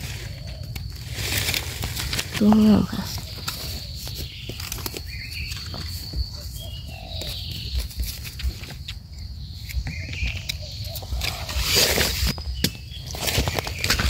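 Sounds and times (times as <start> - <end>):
rustles of leaf litter: 0.0 - 8.9
insect high-pitched trill: 0.0 - 14.0
bird chirps: 2.4 - 14.0.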